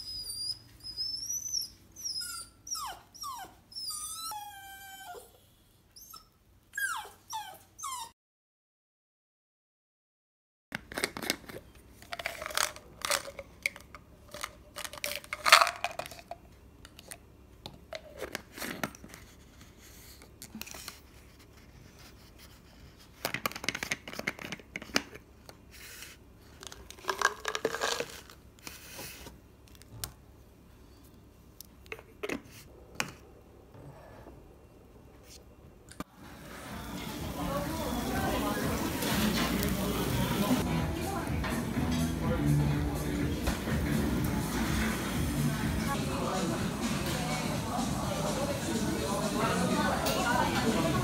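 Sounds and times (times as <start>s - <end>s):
bottle caps clicking and scraping: 10.8s - 17.1s, 26.6s - 28.4s.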